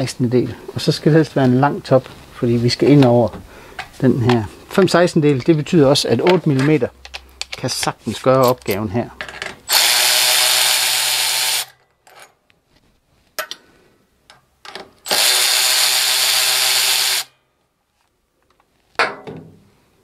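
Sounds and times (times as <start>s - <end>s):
cordless electric ratchet running: 9.7s - 11.8s, 15.1s - 17.3s.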